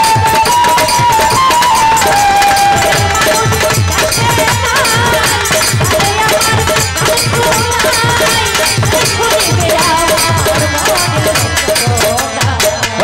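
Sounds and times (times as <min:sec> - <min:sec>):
repeated instrumental note: 0:00.0 - 0:12.4
drum beat: 0:00.0 - 0:13.0
woman singing folk song: 0:00.0 - 0:13.0.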